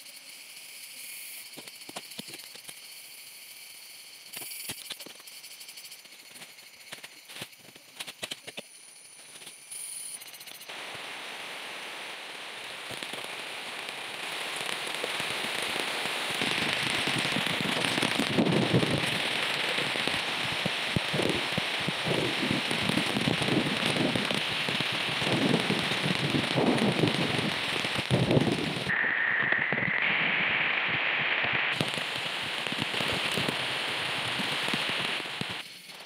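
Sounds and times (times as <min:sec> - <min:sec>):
rain on leaves: 0:10.7 - 0:28.9, 0:31.7 - 0:35.6.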